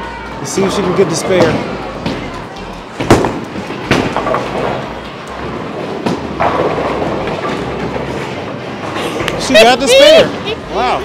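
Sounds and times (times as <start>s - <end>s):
bowling pins clattering: 2.9s - 9.4s
bowling ball rolling down lane: 3.0s - 9.4s.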